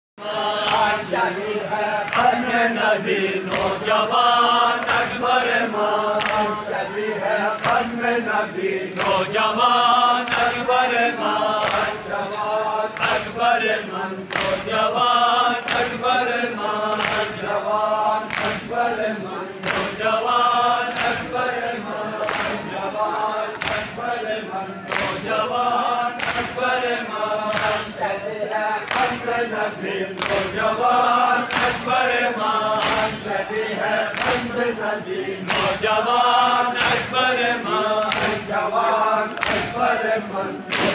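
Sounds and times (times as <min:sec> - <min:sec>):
group of men singing: 0:00.2 - 0:40.9
hands slapping chests: 0:02.0 - 0:02.4, 0:03.5 - 0:03.8, 0:06.1 - 0:06.6, 0:08.9 - 0:09.3, 0:11.6 - 0:12.0, 0:14.3 - 0:14.7, 0:15.5 - 0:16.0, 0:16.9 - 0:17.4, 0:18.2 - 0:18.7, 0:19.6 - 0:20.0, 0:20.8 - 0:21.3, 0:22.2 - 0:22.6, 0:23.5 - 0:24.0, 0:24.9 - 0:25.2, 0:25.9 - 0:26.6, 0:27.5 - 0:27.9, 0:28.8 - 0:29.3, 0:30.2 - 0:30.6, 0:31.4 - 0:31.9, 0:32.6 - 0:33.2, 0:34.0 - 0:34.5, 0:35.4 - 0:35.8, 0:36.8 - 0:37.1, 0:38.0 - 0:38.5, 0:39.3 - 0:39.8, 0:40.7 - 0:40.9.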